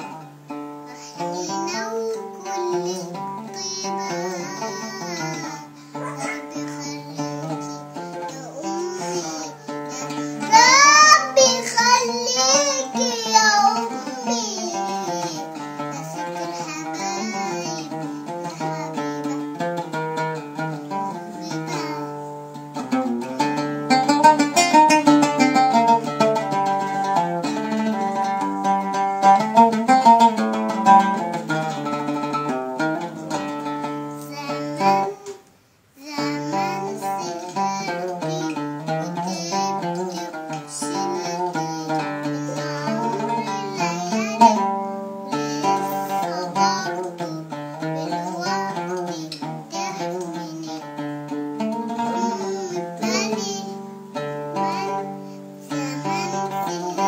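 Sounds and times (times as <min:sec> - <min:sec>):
plucked string instrument music: 0:00.0 - 0:57.0.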